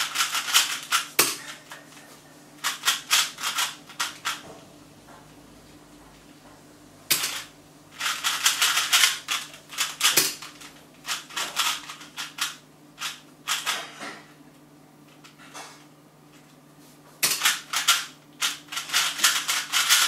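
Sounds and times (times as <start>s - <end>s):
speed cube clicking: 0.0s - 1.1s, 2.6s - 4.4s, 8.0s - 13.7s, 17.4s - 20.0s.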